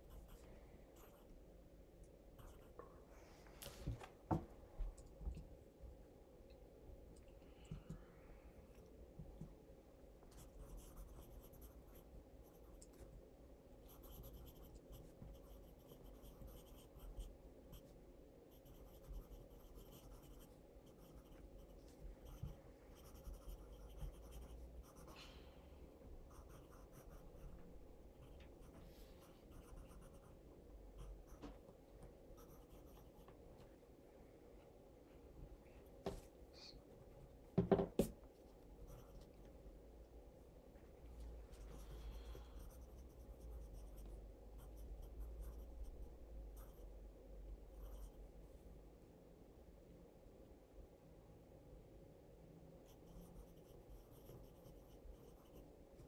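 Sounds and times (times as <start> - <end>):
pencil scratching on paper: 10.4 - 12.7, 13.9 - 17.9, 18.5 - 25.2, 26.3 - 27.6, 28.2 - 30.4, 47.8 - 48.2, 52.9 - 55.6.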